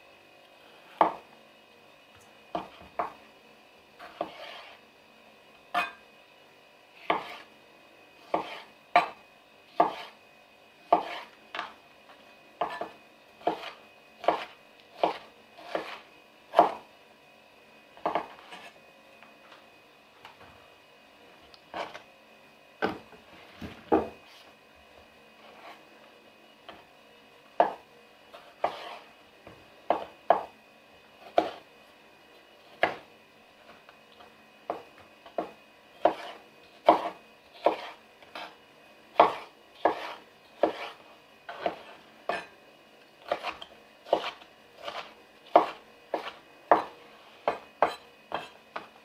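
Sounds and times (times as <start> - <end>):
knife chopping on wooden board: 0.9 - 1.2, 2.5 - 3.2, 4.0 - 4.8, 5.7 - 6.0, 7.0 - 7.5, 8.2 - 10.2, 10.8 - 11.8, 12.6 - 16.8, 18.0 - 18.7, 22.8 - 24.2, 27.6 - 27.8, 28.4 - 30.5, 31.2 - 31.6, 32.7 - 33.1, 34.7 - 38.6, 39.2 - 42.5, 43.2 - 48.9.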